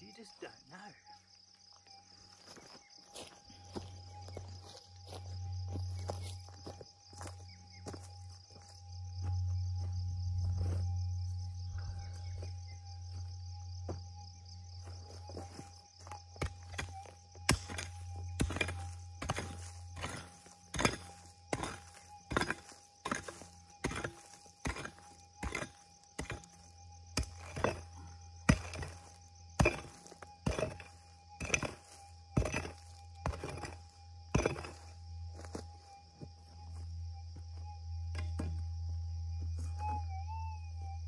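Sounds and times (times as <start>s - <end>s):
pick striking gravelly soil: 15.4s - 35.6s.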